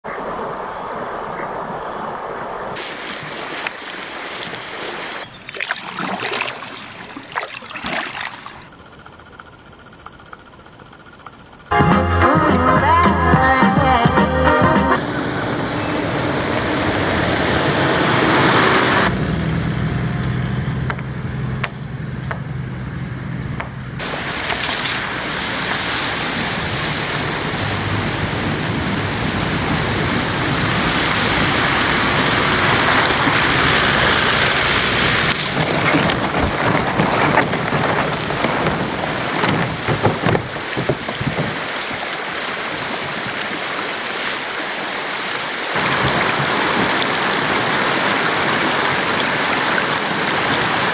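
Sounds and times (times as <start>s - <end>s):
rocky stream rushing: 0.4s - 5.3s, 24.0s - 50.9s
person wading through water: 2.8s - 11.7s
four-wheel drive engine running: 8.7s - 11.8s
vehicle splashing through river: 14.4s - 50.9s.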